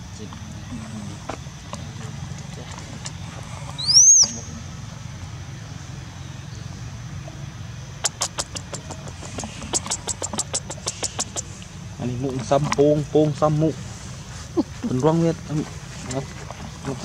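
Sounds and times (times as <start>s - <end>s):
steady low hum: 0.0s - 17.0s
high whistled animal call: 3.8s - 4.6s
sharp clicks: 8.0s - 11.7s.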